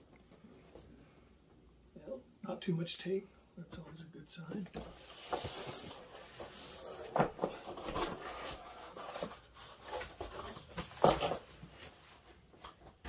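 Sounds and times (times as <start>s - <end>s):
cardboard flaps rustling: 4.8s - 13.0s.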